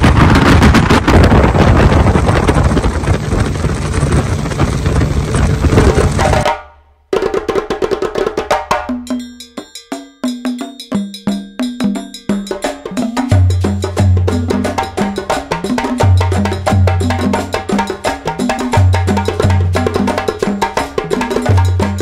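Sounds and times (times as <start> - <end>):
speedboat running fast: 0.0 - 6.4
wind rushing on microphone: 0.0 - 6.4
music with wood-block and drums: 6.1 - 22.0.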